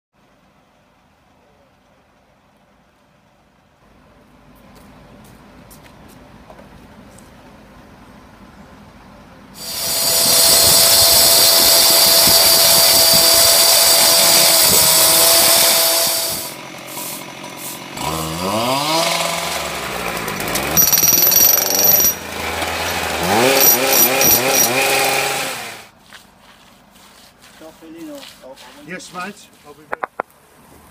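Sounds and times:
cut-off saw grinding with whine: 9.6s - 25.9s
small engine revving: 9.6s - 25.9s
knocking: 29.9s - 30.3s.

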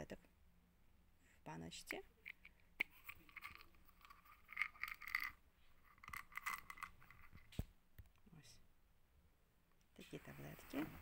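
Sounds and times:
cap scraping: 2.2s - 7.6s
tablets rattling in bottle: 2.4s - 7.5s.

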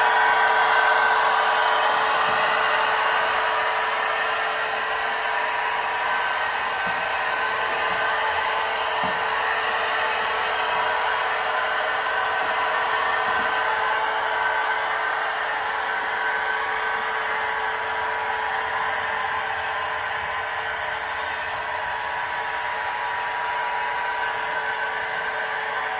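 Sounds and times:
wheels rolling on rails: 0.0s - 15.7s
model locomotive motor whine: 0.0s - 25.9s.

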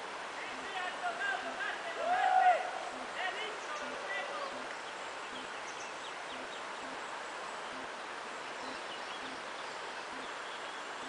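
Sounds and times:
small birds chirping: 2.8s - 11.0s.

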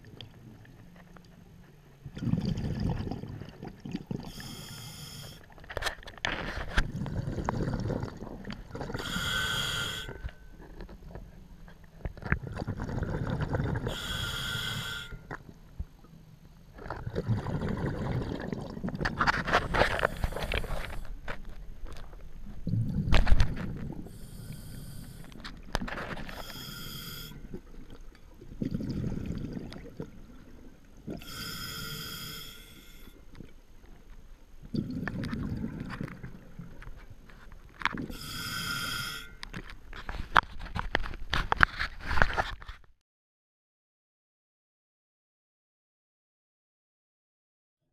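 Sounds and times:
bubbling exhaled air: 2.1s - 5.4s, 6.8s - 10.2s, 12.2s - 15.1s, 16.8s - 21.1s, 22.6s - 25.4s, 26.3s - 32.4s, 34.6s - 36.7s
whistling regulator inhalations: 4.3s - 5.4s, 9.0s - 10.3s, 13.9s - 15.2s, 26.4s - 27.4s, 31.2s - 33.1s, 38.1s - 39.4s.

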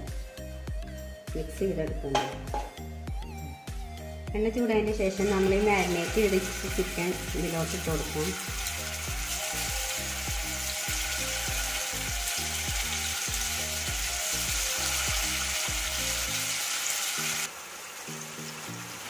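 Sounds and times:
background music: 0.0s - 19.0s
chicken sizzling in oil: 5.0s - 19.0s.

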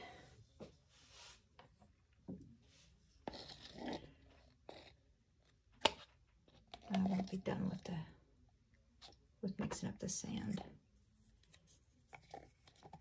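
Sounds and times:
plastic cups scraping and rubbing: 3.2s - 5.0s, 5.8s - 7.9s.

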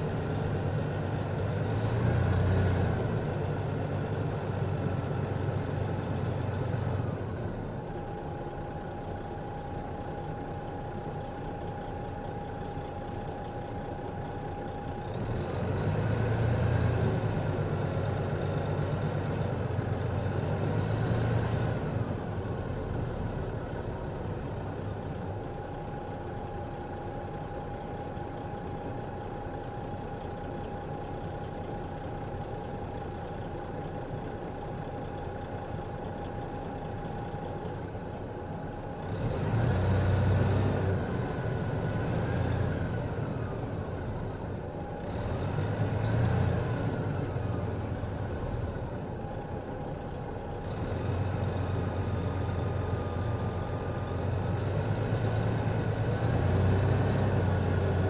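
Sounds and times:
engine revving with whine: 0.0s - 7.7s, 14.8s - 25.3s, 38.9s - 49.4s, 50.4s - 58.0s
diesel engine idling: 0.0s - 58.0s.

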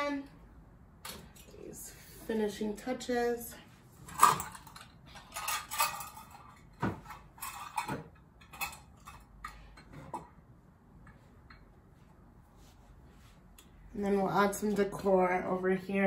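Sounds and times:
metal utensils clinking: 4.1s - 10.3s.

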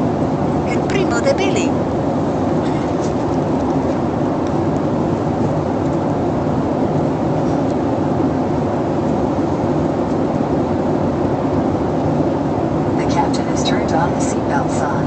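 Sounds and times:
airliner cabin rushing noise: 0.0s - 15.0s.

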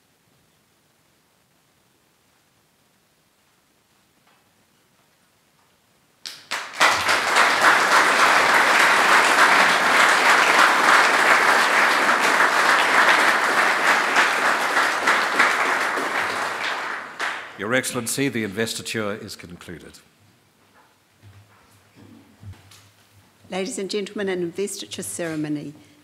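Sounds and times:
audience applauding: 6.3s - 18.4s.

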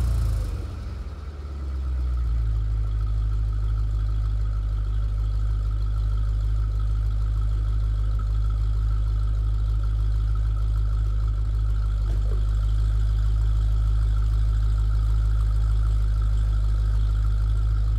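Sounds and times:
car engine idling: 0.0s - 17.9s.

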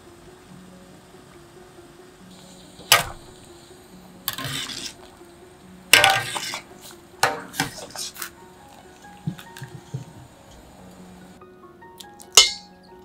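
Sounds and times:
metal ladle clinking on pot: 6.0s - 8.1s, 12.4s - 12.8s.

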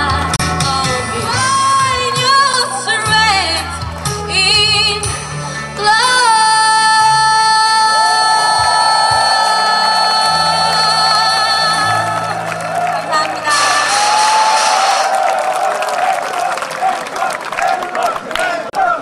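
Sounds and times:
woman singing with vibrato: 0.0s - 14.4s.

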